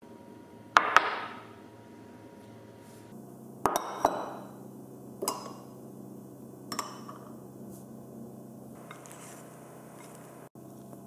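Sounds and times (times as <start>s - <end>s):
low steady hum: 0.0s - 11.0s
ceramic bowls clinking on table: 3.7s - 4.5s, 5.2s - 5.7s, 6.7s - 7.4s.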